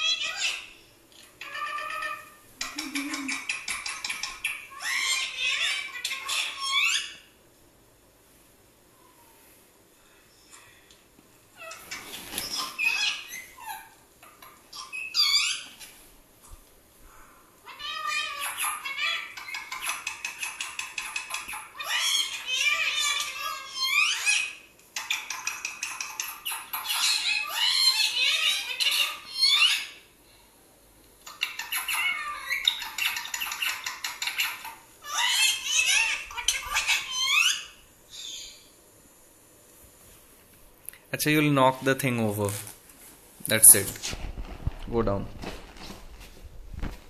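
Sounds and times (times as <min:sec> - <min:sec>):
high-pitched animal calls from speakers: 0:17.1 - 0:19.4.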